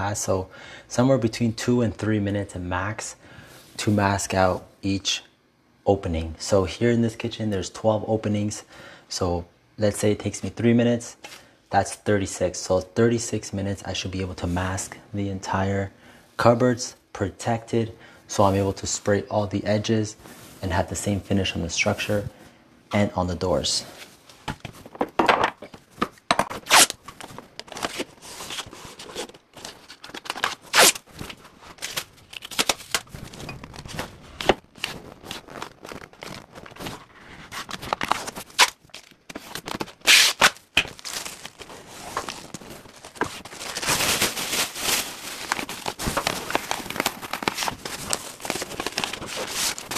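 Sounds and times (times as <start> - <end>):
tape ripping: 26.4 - 49.9
plastic film crinkling: 26.6 - 49.9.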